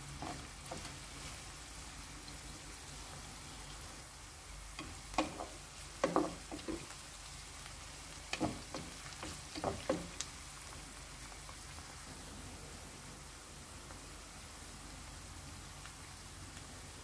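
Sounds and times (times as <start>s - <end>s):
wooden spoon scraping a pan: 0.0s - 1.6s, 4.8s - 7.0s, 8.2s - 10.2s
vegetables sizzling in oil: 0.0s - 17.0s.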